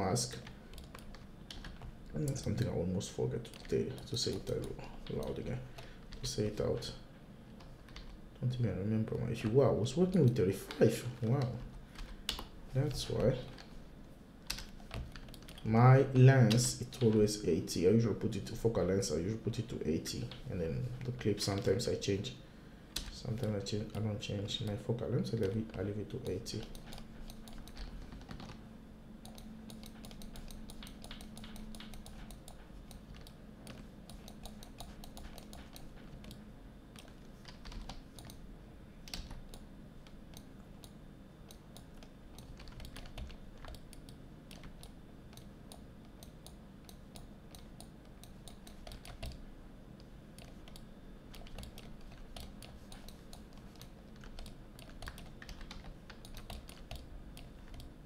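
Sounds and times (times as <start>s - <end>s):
computer keyboard typing: 0.2s - 2.8s, 3.4s - 6.8s, 7.6s - 8.2s, 10.0s - 13.8s, 14.4s - 15.8s, 23.0s - 24.8s, 25.4s - 28.6s, 29.2s - 38.4s, 39.1s - 49.4s, 50.4s - 57.9s.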